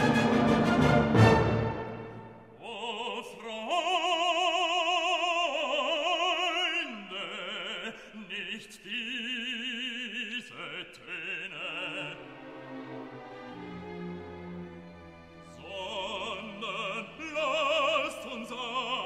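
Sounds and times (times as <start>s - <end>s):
operatic singing: 0.0s - 19.0s.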